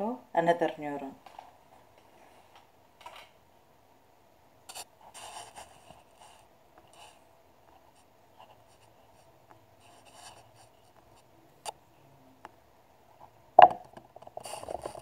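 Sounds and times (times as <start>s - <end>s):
faint steady hum: 0.0s - 15.0s
scratchy rubbing: 4.7s - 7.2s, 7.8s - 11.2s, 14.4s - 15.0s.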